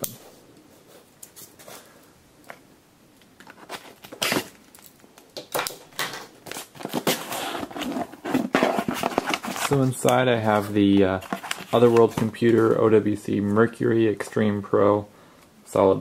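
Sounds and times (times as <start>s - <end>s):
scraping and rustling of cardboard: 3.4s - 4.6s, 6.0s - 12.9s.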